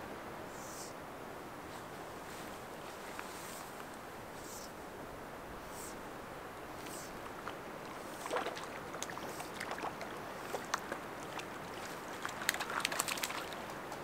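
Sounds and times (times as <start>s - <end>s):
water splashing at shoreline: 6.6s - 14.0s
fish splashing in water: 6.8s - 13.9s.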